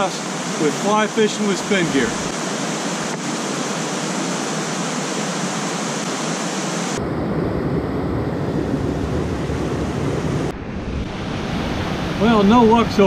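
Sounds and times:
river water rushing over rapid: 0.0s - 7.0s.

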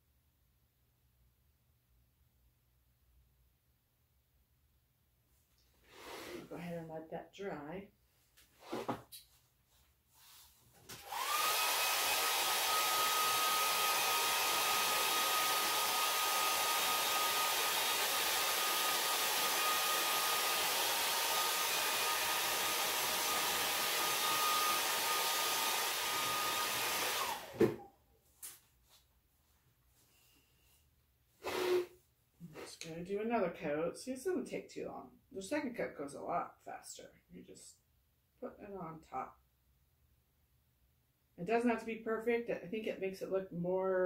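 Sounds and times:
hair dryer blowing: 10.9s - 27.9s, 31.4s - 31.9s.

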